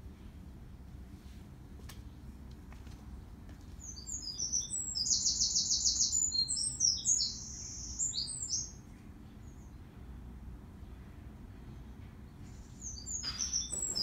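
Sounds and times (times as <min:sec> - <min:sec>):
songbird singing with trill: 0:03.8 - 0:09.8, 0:12.3 - 0:14.0.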